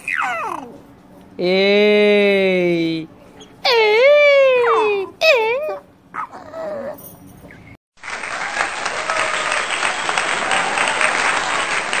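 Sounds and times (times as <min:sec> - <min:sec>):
crowd applause: 0:08.0 - 0:12.0.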